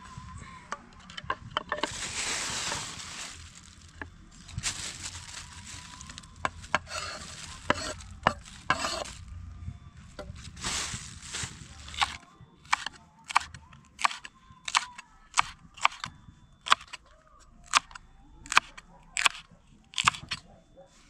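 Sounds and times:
plastic bag crinkling: 1.5s - 9.3s, 10.3s - 12.9s.

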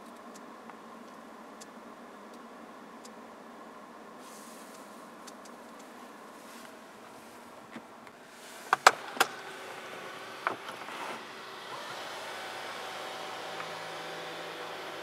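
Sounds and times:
sunroof electric motor hum: 5.9s - 15.0s.

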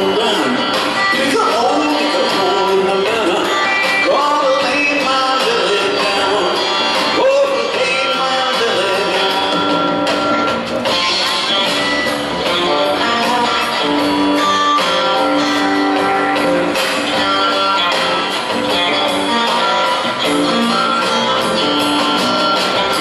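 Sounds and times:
drum kit with cymbals: 0.0s - 23.0s
electric guitar: 0.0s - 23.0s
upright bass: 0.0s - 23.0s.

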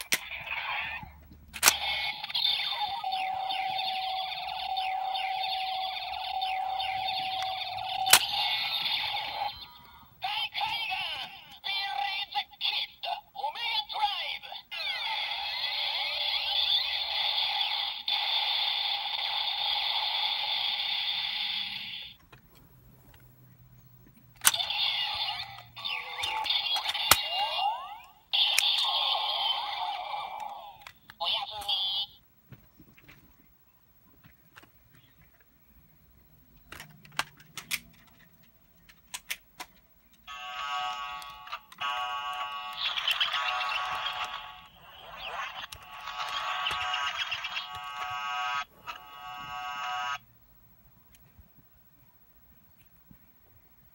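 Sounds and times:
hissing electronic toy sound effect: 0.1s - 22.2s, 24.4s - 32.2s, 40.3s - 50.2s
plastic toys clicking and knocking: 24.3s - 27.4s, 36.6s - 40.3s.

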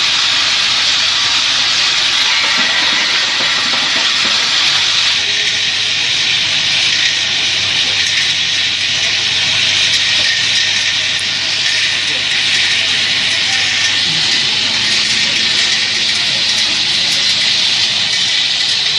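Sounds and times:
factory machinery hissing: 0.0s - 18.9s.

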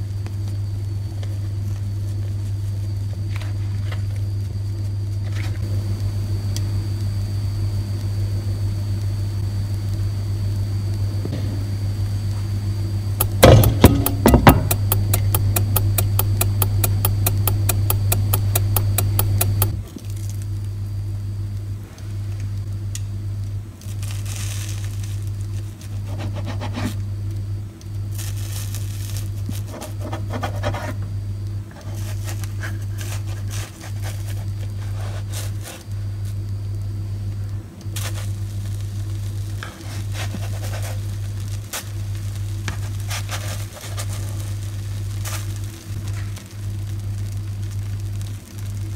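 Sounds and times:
low steady hum: 0.0s - 48.9s
soft sizzling: 10.9s - 48.9s
rapid clock ticking: 13.2s - 19.8s.

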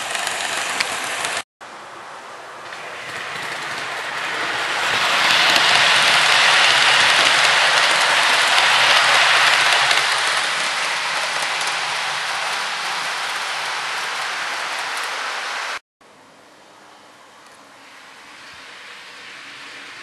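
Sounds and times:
model train rattling on track: 0.0s - 1.4s, 2.6s - 15.8s.

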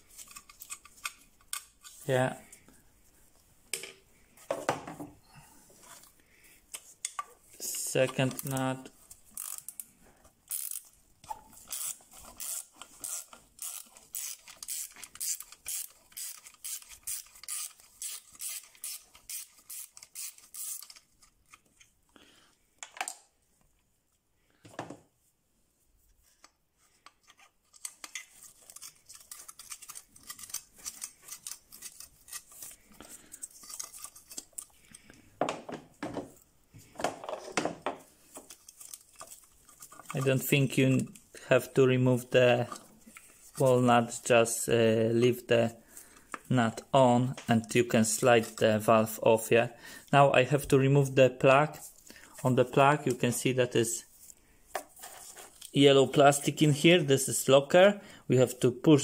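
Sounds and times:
ratchet wrench clicking: 9.4s - 9.6s, 10.5s - 10.8s, 11.7s - 20.9s.

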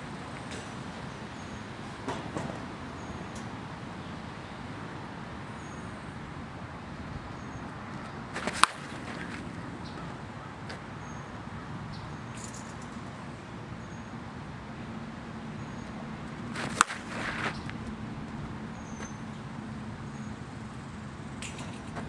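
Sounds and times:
outdoor background noise: 0.0s - 22.0s
bat cracking against softball: 8.3s - 9.6s, 16.3s - 18.0s.

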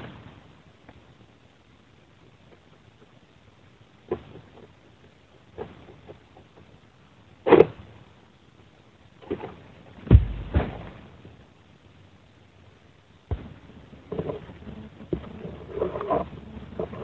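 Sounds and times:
heavy thud on ground: 10.0s - 11.0s, 13.3s - 13.6s.

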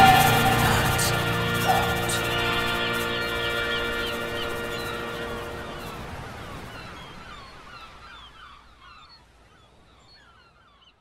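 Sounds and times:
waves breaking: 0.0s - 8.0s
gulls calling: 0.0s - 8.4s.

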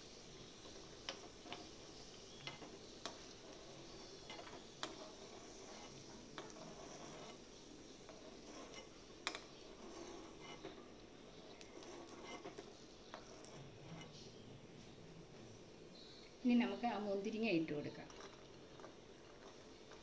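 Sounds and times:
ghee sizzling: 0.0s - 20.0s
spoon scraping and tapping a pan: 0.6s - 14.2s, 17.9s - 20.0s.

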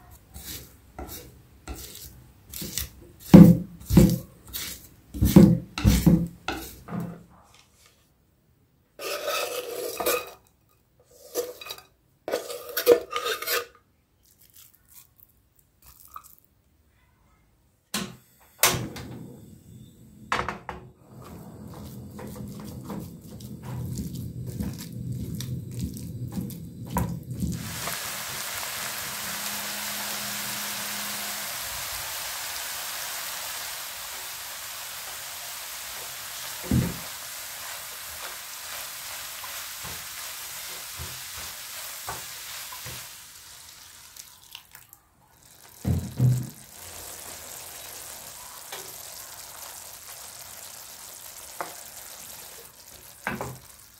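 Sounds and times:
spatula scraping meat in a pan: 0.3s - 6.9s, 9.0s - 10.4s, 11.0s - 13.7s, 21.4s - 43.2s
meat sizzling in a frying pan: 21.7s - 44.7s, 45.3s - 53.9s.

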